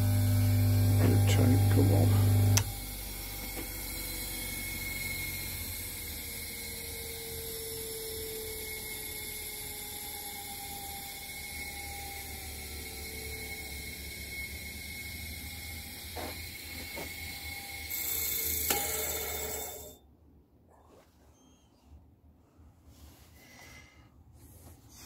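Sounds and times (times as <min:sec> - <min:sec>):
electric motor humming: 0:00.0 - 0:19.9.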